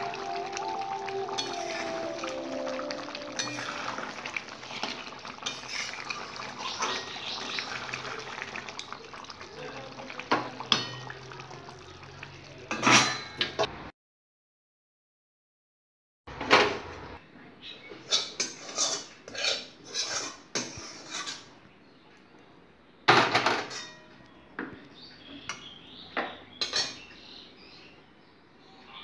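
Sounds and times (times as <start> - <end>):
metal spoon scraping a pan: 4.7 - 7.3, 18.0 - 21.5, 26.6 - 27.0.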